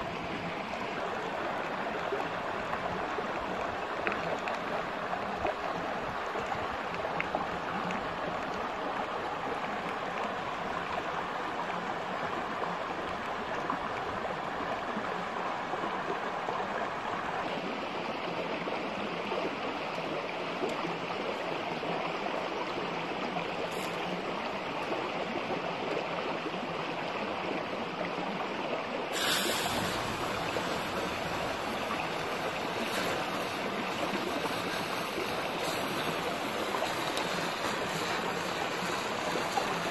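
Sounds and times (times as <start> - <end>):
stream running over rocks: 0.0 - 39.9
hissing rush of water: 23.5 - 24.6, 29.0 - 39.9.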